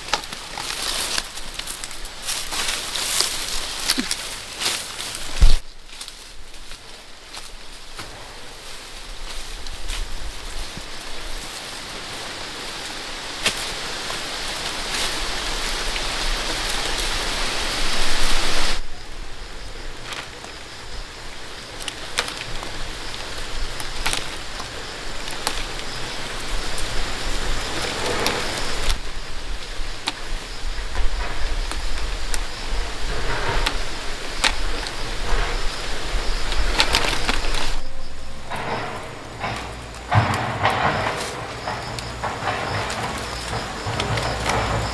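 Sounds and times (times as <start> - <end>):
fruits pattering into a basket: 0.0 - 8.2, 33.6 - 44.9.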